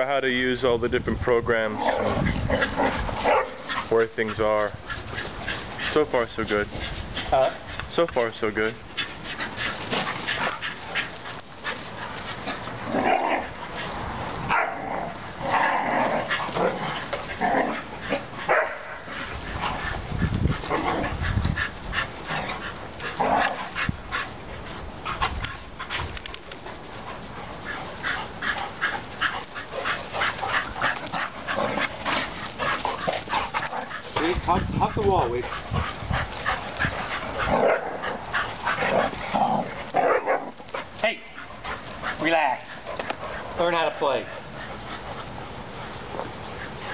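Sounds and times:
dogs yipping and barking: 0:01.9 - 0:03.9, 0:08.8 - 0:26.0, 0:26.7 - 0:43.6.

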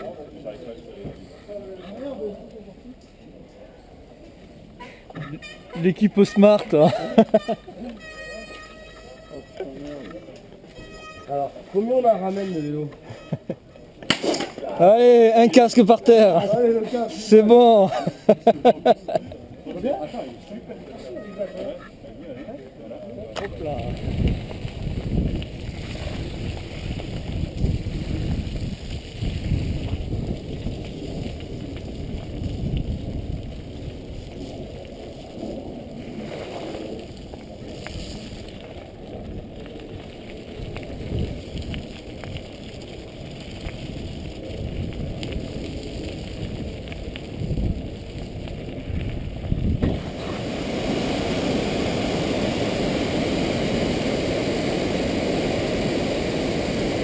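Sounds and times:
bike tyres on rough path: 0:00.0 - 0:18.4, 0:19.0 - 0:57.0
wind buffeting microphone: 0:23.5 - 0:57.0
water pouring down cascade: 0:23.6 - 0:57.0.

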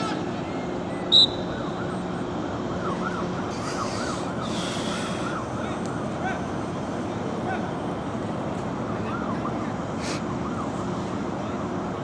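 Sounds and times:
sharp whistle blast: 0:01.1 - 0:01.4
siren yelping: 0:01.1 - 0:06.6, 0:08.8 - 0:10.9.

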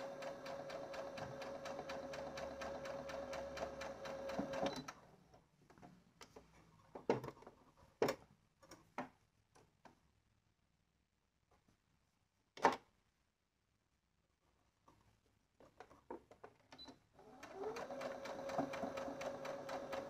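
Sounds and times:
sewing machine stitching: 0:00.0 - 0:04.9, 0:17.2 - 0:20.0.

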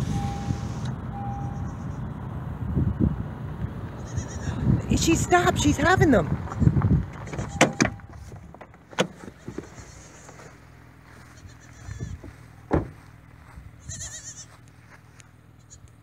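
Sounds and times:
distant goat bleating: 0:04.0 - 0:04.7, 0:06.6 - 0:08.0, 0:09.2 - 0:12.4, 0:13.7 - 0:14.6, 0:15.6 - 0:15.9
sharp knocks: 0:12.7 - 0:13.0.

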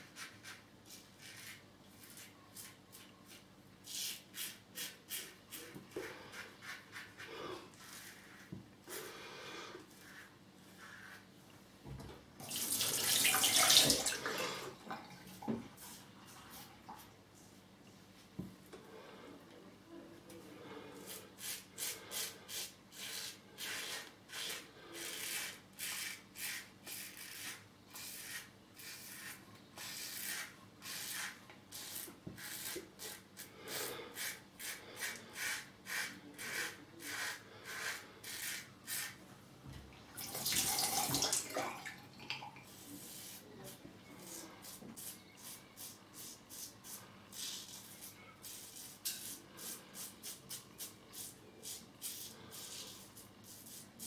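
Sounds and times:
razor scraping stubble: 0:21.1 - 0:33.2.

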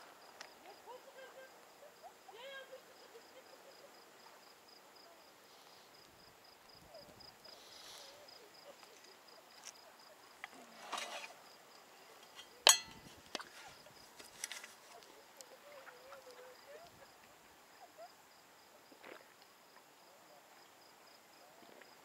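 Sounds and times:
insect chirping: 0:00.0 - 0:22.0
brief rustle: 0:10.4 - 0:11.4, 0:12.2 - 0:15.2.

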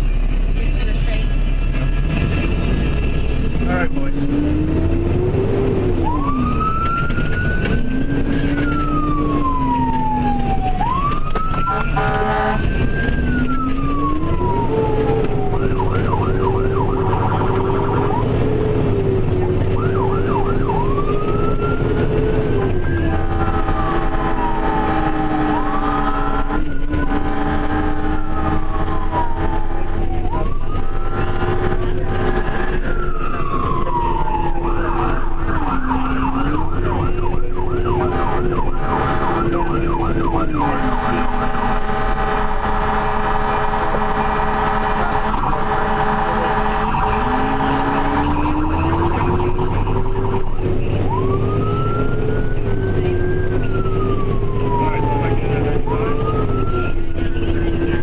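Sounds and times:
second lower siren tone: 0:03.9 - 0:58.0
siren wailing and yelping: 0:04.2 - 0:58.0
vehicle horn blasts: 0:11.7 - 0:12.9, 0:40.6 - 0:48.2.

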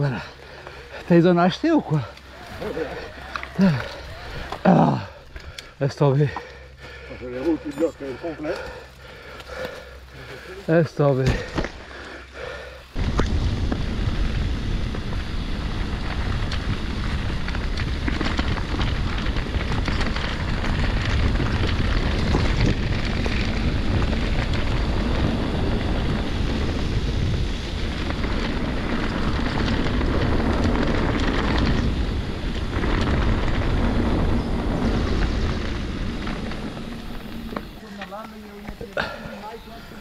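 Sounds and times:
bike clicks and rattles: 0:00.0 - 0:40.0
bike rumble: 0:00.0 - 0:40.0
wind on microphone: 0:13.0 - 0:37.8.

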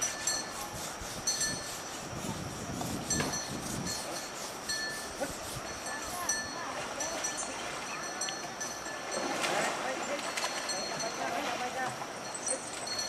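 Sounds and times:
river water flowing: 0:05.7 - 0:13.0
ringing metallic clinks: 0:12.1 - 0:13.0.

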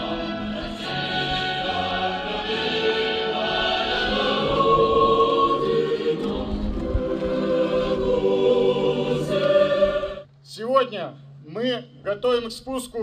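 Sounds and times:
choir singing long notes: 0:00.0 - 0:10.3.

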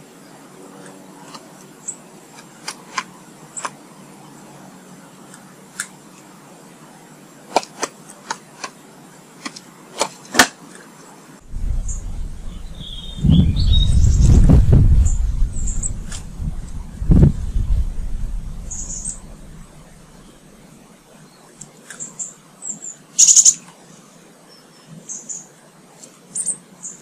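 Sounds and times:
bird chirps: 0:11.5 - 0:20.4
wind buffeting microphone: 0:11.5 - 0:20.6.

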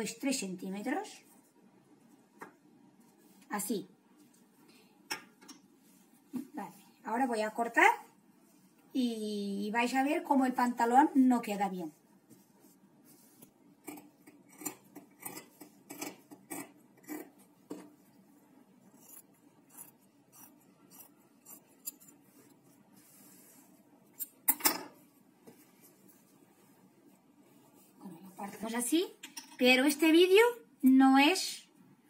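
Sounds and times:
scissors snipping fabric: 0:18.9 - 0:22.2.

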